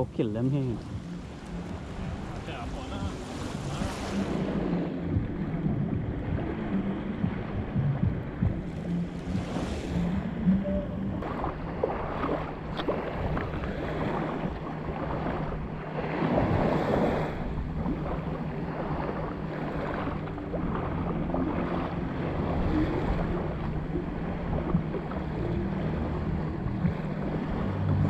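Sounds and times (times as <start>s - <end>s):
steady low hum: 0.0s - 28.0s
surf washing onto beach: 0.0s - 28.0s
wind on microphone: 0.0s - 28.0s.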